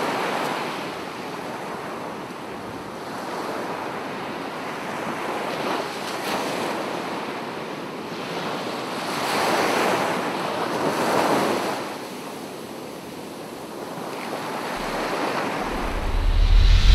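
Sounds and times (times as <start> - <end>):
rushing ambient noise: 14.8 - 16.9.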